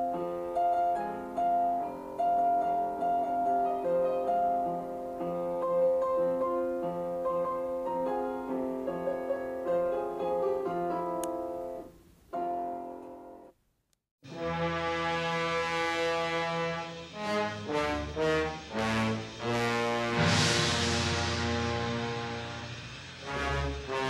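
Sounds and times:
piano music: 0:00.0 - 0:13.6, 0:14.3 - 0:24.0.

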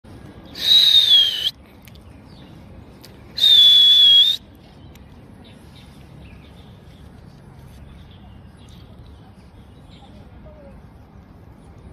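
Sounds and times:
high whistle blasts: 0:00.6 - 0:01.5, 0:03.4 - 0:04.4.

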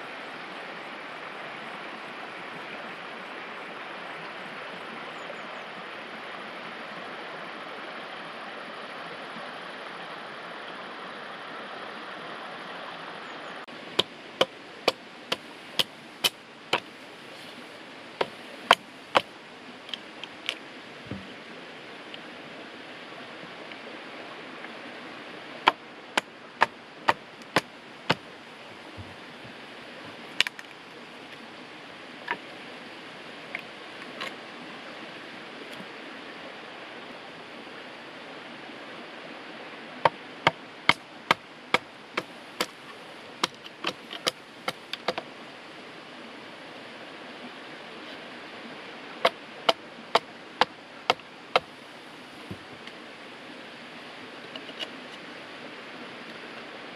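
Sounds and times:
steady rushing hiss: 0:00.0 - 0:05.2, 0:05.8 - 0:56.9.

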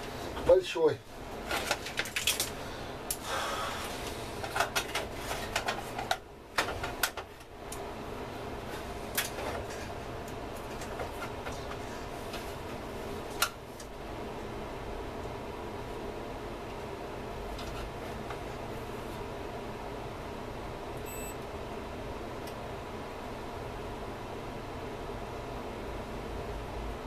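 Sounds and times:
steady faint hum: 0:00.0 - 0:27.0
clicks and knocks of handled parts: 0:01.5 - 0:03.2.

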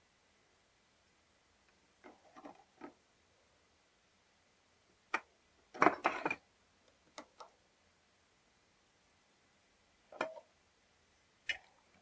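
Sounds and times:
metal cover plate clattering: 0:05.8 - 0:06.4.

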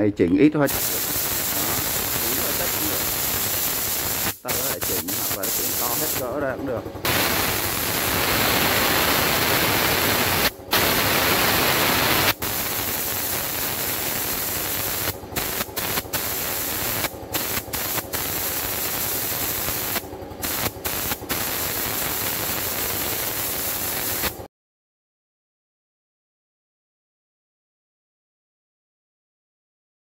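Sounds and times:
spray gun hissing: 0:00.7 - 0:06.3, 0:07.0 - 0:24.4.

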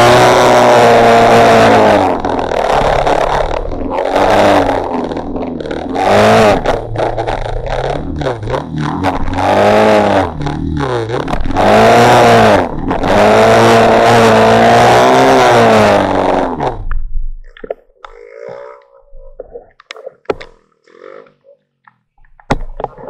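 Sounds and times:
motorcycle engine revving: 0:00.0 - 0:16.9.

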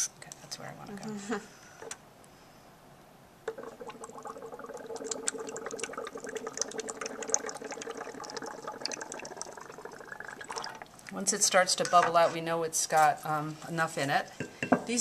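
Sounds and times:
gas bubbling into water: 0:03.5 - 0:11.1.

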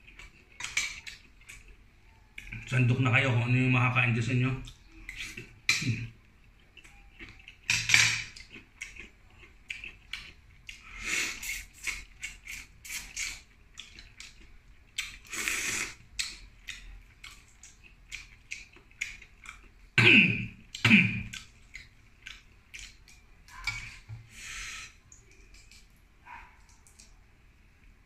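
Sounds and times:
wet mouth noises: 0:10.7 - 0:14.4
slurp: 0:10.8 - 0:13.5, 0:15.2 - 0:16.0.

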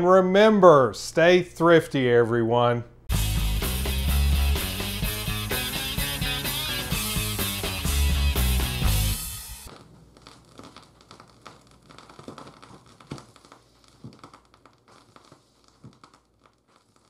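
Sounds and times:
music: 0:03.1 - 0:09.7
vinyl crackles and pops: 0:04.0 - 0:17.0.

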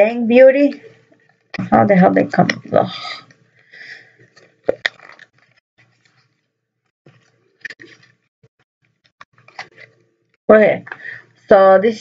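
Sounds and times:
packaging clicks and crinkles: 0:04.3 - 0:06.2.

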